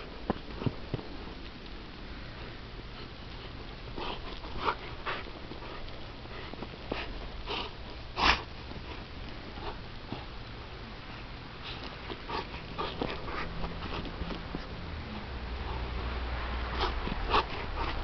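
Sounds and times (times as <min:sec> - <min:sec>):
puppy huffing breaths: 0:02.4 - 0:10.4, 0:11.1 - 0:14.8, 0:15.6 - 0:18.0.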